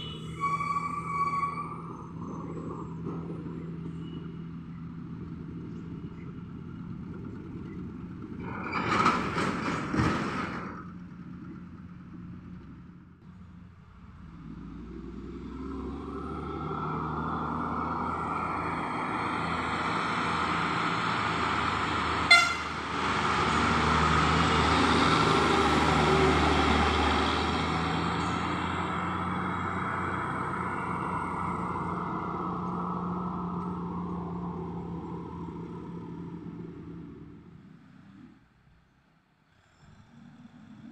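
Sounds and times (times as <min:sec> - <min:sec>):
truck horn toot: 0:00.0 - 0:01.8, 0:22.2 - 0:22.9
truck diesel engine passing: 0:00.0 - 0:40.9.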